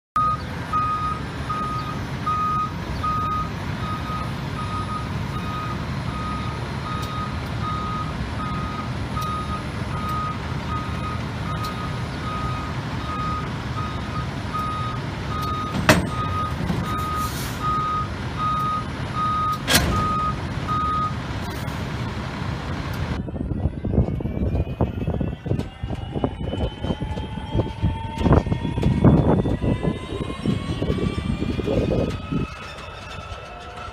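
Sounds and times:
reversing alarm beeping: 0.2s - 21.2s, 23.2s - 33.9s
low rumble: 21.7s - 33.9s.

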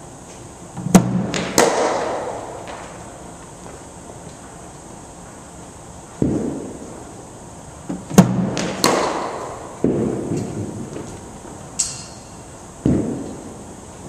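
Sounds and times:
cricket bat striking ball: 0.8s - 3.0s, 8.1s - 10.4s
dull thuds of balls landing: 7.9s - 11.1s, 12.8s - 13.4s.

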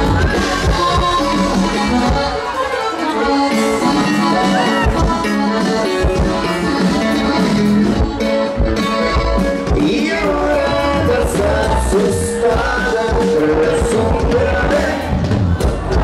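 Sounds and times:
acoustic guitar: 0.0s - 16.0s
live band playing: 0.0s - 16.0s
men singing into microphone: 9.4s - 16.0s.

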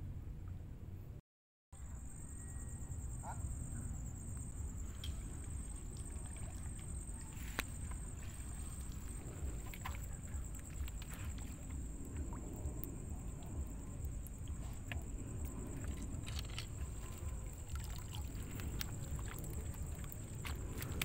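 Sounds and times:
steady low rumble: 1.8s - 21.0s
footsteps wading through water: 4.8s - 12.9s, 14.4s - 21.0s.

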